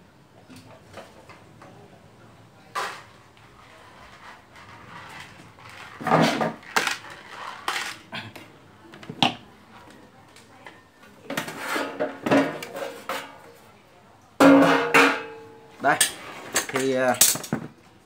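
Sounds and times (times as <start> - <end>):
sheet metal clanks and rattles: 14.4 - 15.4.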